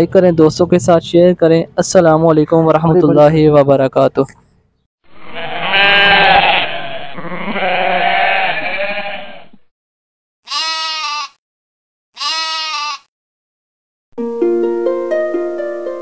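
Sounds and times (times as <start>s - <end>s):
goats bleating: 5.2s - 9.6s, 10.5s - 11.4s, 12.2s - 13.1s.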